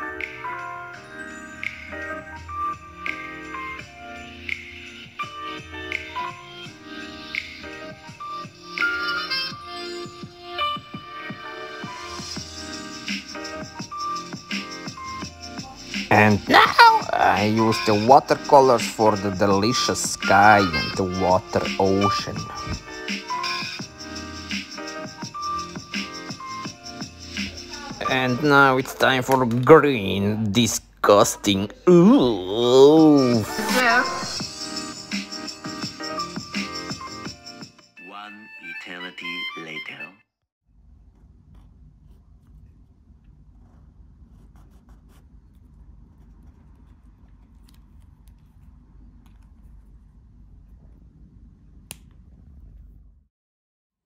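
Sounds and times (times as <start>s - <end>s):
low steady hum: 40.7s - 53.3s
pen nib scratching on paper: 43.5s - 50.1s.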